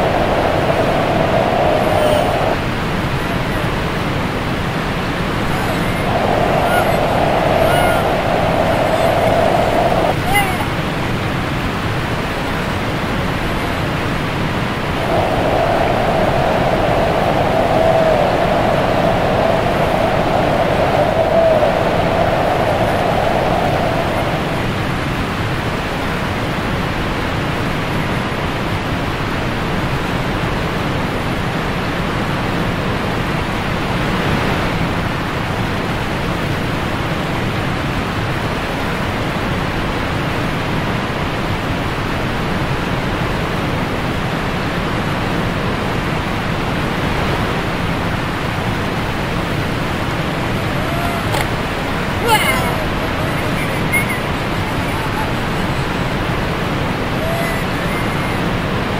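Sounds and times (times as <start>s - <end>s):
whitewater rushing: 0.0s - 27.0s, 46.0s - 58.9s.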